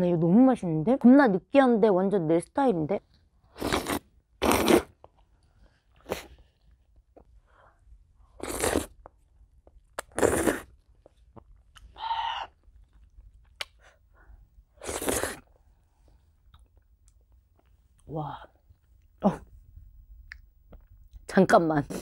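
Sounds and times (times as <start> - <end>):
loud noodle slurping: 3.6 - 5.0, 8.4 - 9.0, 10.0 - 10.8, 14.8 - 15.4.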